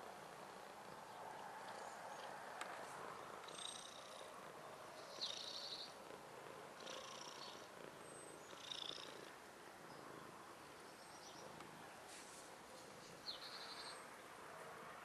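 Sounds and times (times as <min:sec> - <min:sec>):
cat purring: 0:00.0 - 0:09.4.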